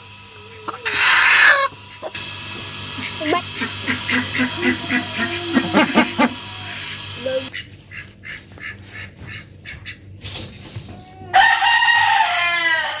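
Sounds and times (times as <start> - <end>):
poultry calling: 0.4 - 2.2, 2.9 - 10.1.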